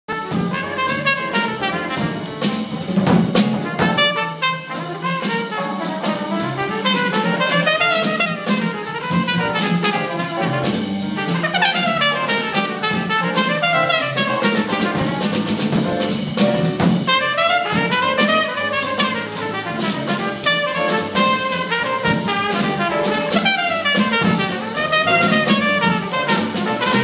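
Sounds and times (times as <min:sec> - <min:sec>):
trumpet solo: 0:00.1 - 0:02.8, 0:03.6 - 0:16.0, 0:17.0 - 0:27.0
drum kit with cymbals: 0:00.1 - 0:27.0
plucked upright bass: 0:01.7 - 0:04.0.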